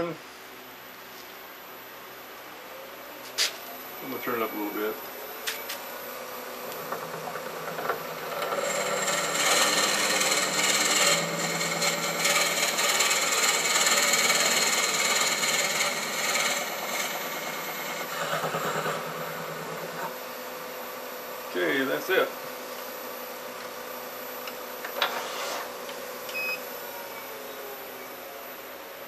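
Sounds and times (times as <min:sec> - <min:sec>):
wood lathe humming: 0:06.6 - 0:20.2
drill bit cutting wood: 0:06.7 - 0:20.1.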